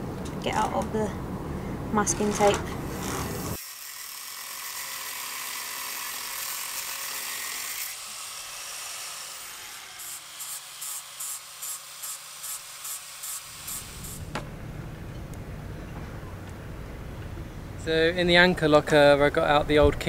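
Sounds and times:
handheld power tool whirring: 0:02.9 - 0:14.3.

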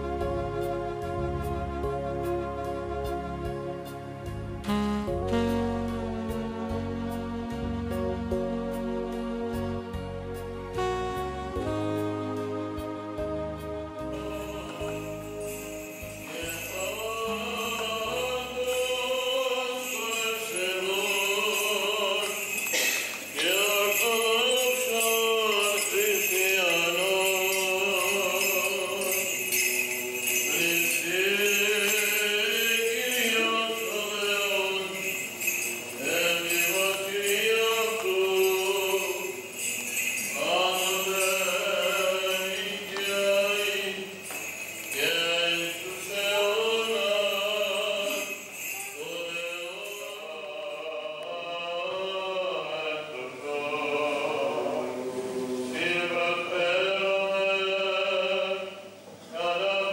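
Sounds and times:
small bells jingling: 0:14.1 - 0:55.0
man chanting: 0:16.2 - 0:22.7, 0:23.3 - 0:44.2, 0:44.8 - 0:59.9.

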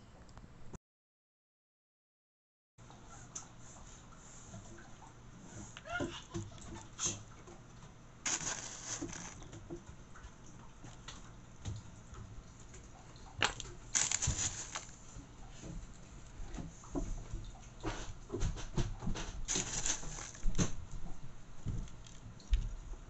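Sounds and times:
rustling scrapes: 0:08.2 - 0:09.5, 0:13.9 - 0:16.3, 0:19.4 - 0:20.8.

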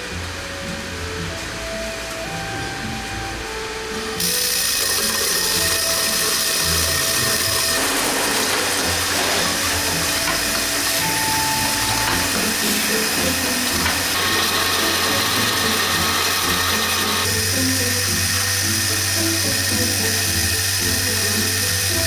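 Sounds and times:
factory machinery running: 0:00.0 - 0:22.0.

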